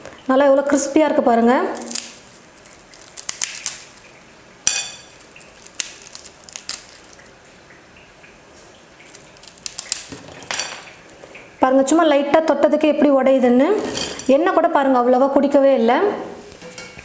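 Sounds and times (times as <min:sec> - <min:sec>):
crisp snack snapping and crackling: 0:01.8 - 0:04.2, 0:05.0 - 0:07.3, 0:09.0 - 0:10.4.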